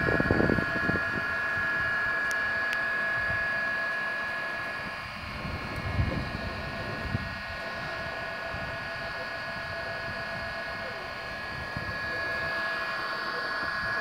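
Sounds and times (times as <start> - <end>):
wind rumble on microphone: 0.0 - 1.9, 4.8 - 9.0
drone propellers whining: 0.0 - 14.0.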